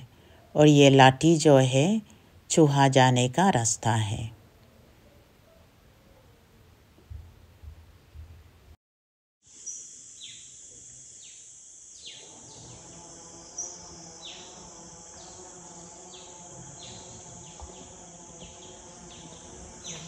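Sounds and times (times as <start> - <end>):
high-pitched insect drone: 9.5 - 20.0.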